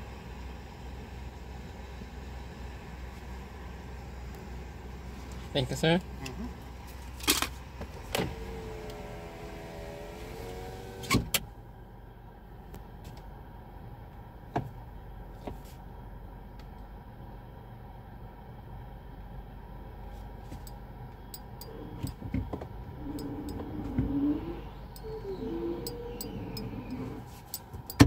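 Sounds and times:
low steady rumble: 0.0s - 28.0s
power window motor whining: 7.8s - 11.4s, 21.6s - 28.0s.

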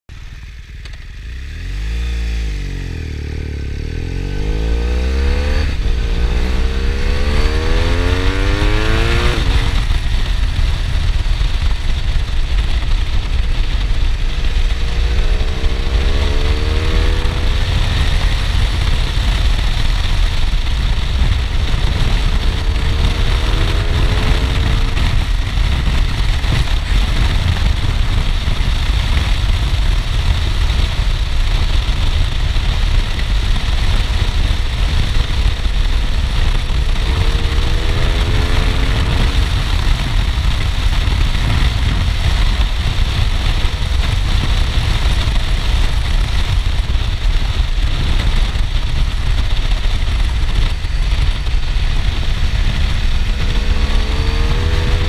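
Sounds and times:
motorcycle engine accelerating: 0.1s - 55.0s
wind rumble on microphone: 1.2s - 55.0s.

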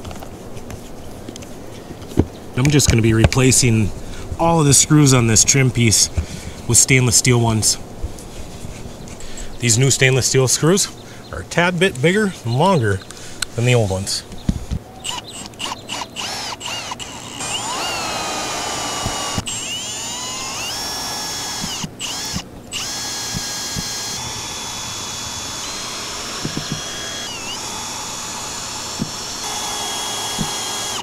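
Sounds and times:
cordless drill whining: 15.0s - 31.0s.

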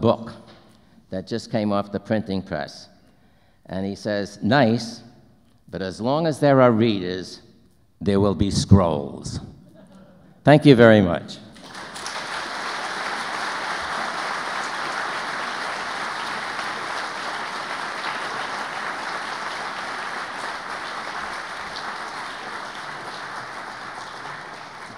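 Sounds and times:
audience applauding: 11.6s - 24.9s.

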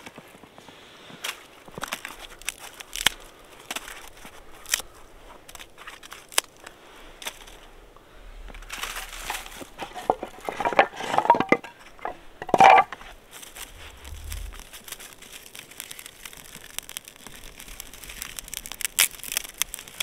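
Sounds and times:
twigs snapping: 1.2s - 7.7s, 12.9s - 20.0s.

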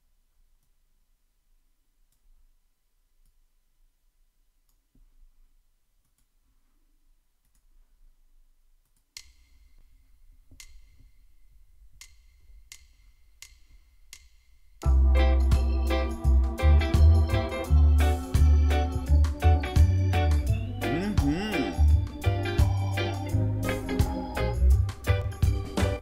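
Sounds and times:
metronome count-in clicks: 8.9s - 9.7s, 12.0s - 15.0s
backing track music: 14.2s - 26.0s.

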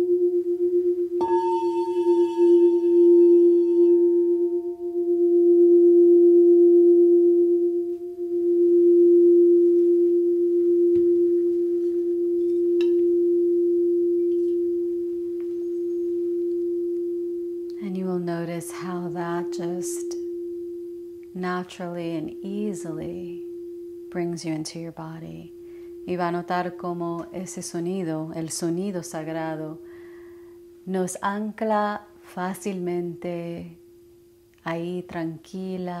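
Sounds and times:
singing bowl ringing: 0.0s - 33.0s
woman's voice: 17.8s - 20.2s, 21.4s - 23.5s, 24.1s - 25.5s, 26.1s - 29.8s, 30.9s - 33.8s, 34.6s - 36.0s.

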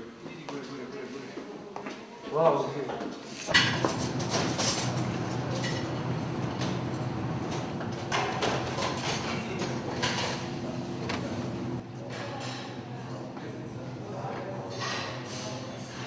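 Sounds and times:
plates and trays clattering: 3.5s - 6.9s, 7.5s - 12.8s
steady low hum: 3.8s - 12.0s.

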